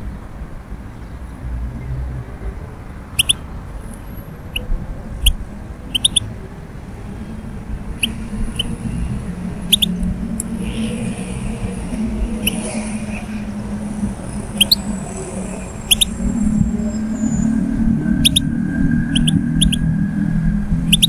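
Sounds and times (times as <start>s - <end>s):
bird chirping call notes: 3.1s - 3.6s, 4.4s - 6.3s, 7.9s - 13.4s, 14.2s - 17.6s, 18.2s - 18.5s, 19.1s - 19.9s.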